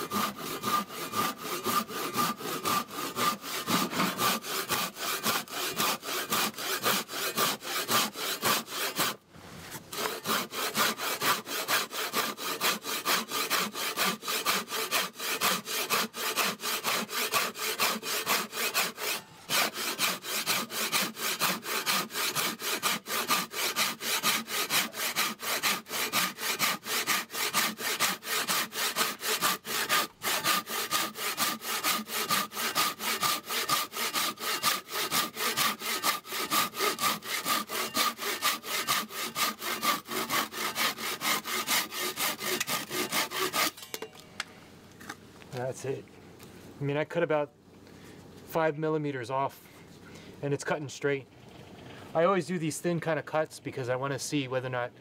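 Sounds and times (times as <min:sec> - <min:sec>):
hand saw cutting wood: 0:00.0 - 0:09.2, 0:09.9 - 0:44.0.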